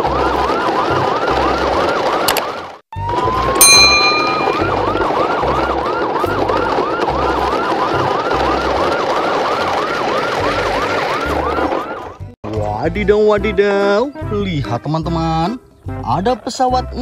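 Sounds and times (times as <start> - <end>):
toy siren wailing: 3.0 - 12.2.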